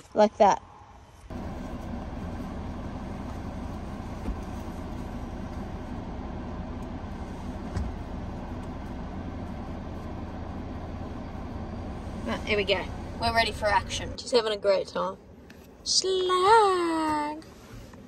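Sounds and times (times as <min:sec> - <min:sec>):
vehicle engine rumble: 0:01.0 - 0:18.0.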